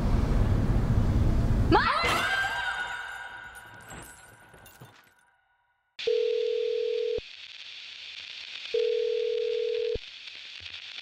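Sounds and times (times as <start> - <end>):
telephone ringback tone: 6.0 - 7.2, 8.8 - 10.0
phone line hiss: 6.0 - 11.0.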